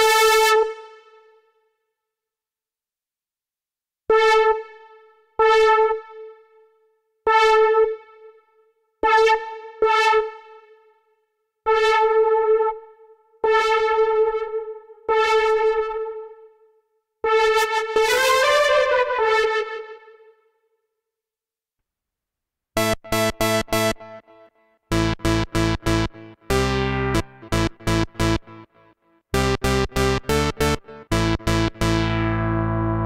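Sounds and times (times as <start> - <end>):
full synthesizer chord: 29.4 - 33.0
synthesizer lead notes: 29.4 - 33.0.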